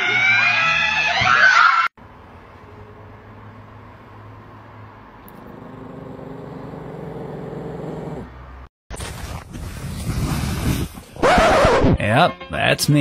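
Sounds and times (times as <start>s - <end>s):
dog growling: 5.3s - 8.3s.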